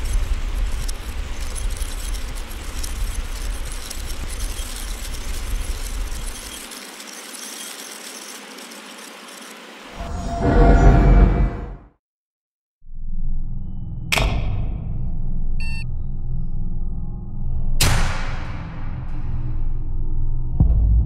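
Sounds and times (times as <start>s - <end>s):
low rumble: 10.0s - 11.9s.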